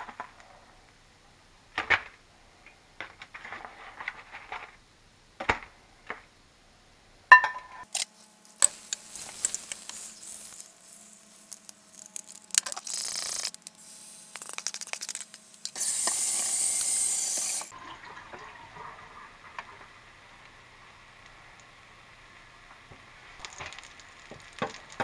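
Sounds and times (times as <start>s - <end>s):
batter sizzling in skillet: 7.9s - 17.8s, 23.1s - 25.0s
paper towel rustling in skillet: 8.0s - 13.2s.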